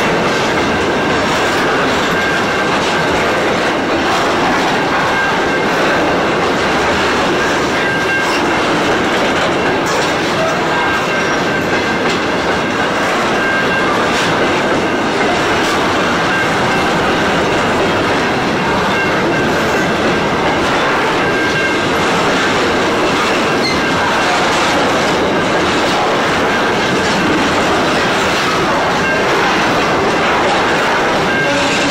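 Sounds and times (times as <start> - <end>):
steel wheels rumbling on rail: 0.0 - 31.9.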